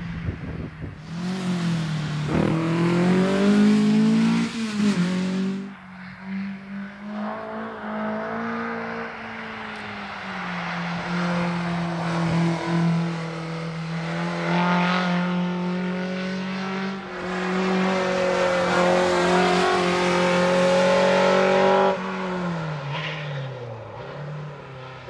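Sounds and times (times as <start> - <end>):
race car engine under throttle: 0.0 - 9.9.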